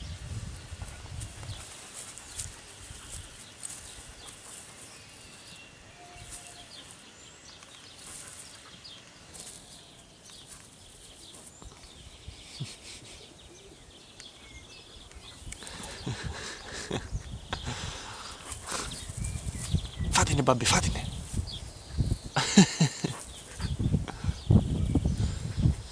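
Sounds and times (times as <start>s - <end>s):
dogs scuffling and rustling: 0.5s - 12.0s
faint bird chirps: 1.6s - 17.8s.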